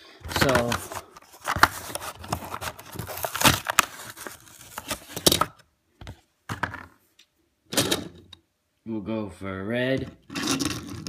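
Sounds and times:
plastic packaging crinkling: 0:00.3 - 0:05.2.

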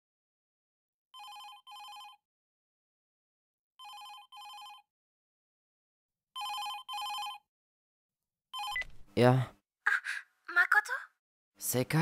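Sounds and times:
telephone ringing: 0:01.2 - 0:02.2, 0:03.8 - 0:04.9, 0:06.4 - 0:07.5, 0:08.6 - 0:09.0.

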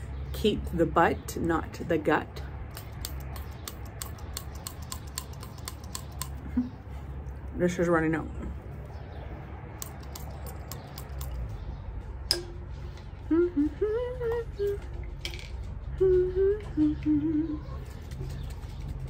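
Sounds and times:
steady low rumble: 0:06.2 - 0:19.0
woman humming: 0:13.2 - 0:15.0, 0:15.9 - 0:17.8.

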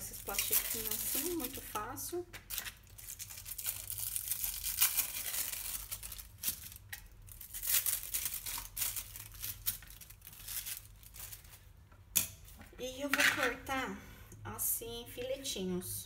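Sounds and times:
plastic wrapper crinkling: 0:00.0 - 0:11.8.

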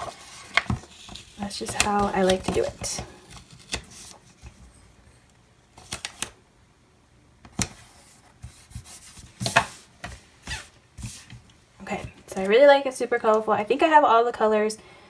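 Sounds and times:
paper rustling and rubbing: 0:00.0 - 0:04.7, 0:07.7 - 0:11.4.

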